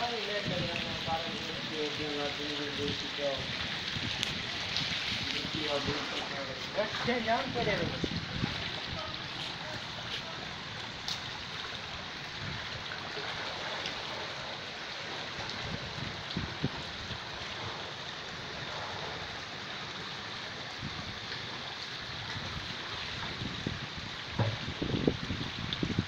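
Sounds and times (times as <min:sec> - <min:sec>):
rushing water: 0:00.0 - 0:26.0
soft thumps: 0:24.4 - 0:24.8.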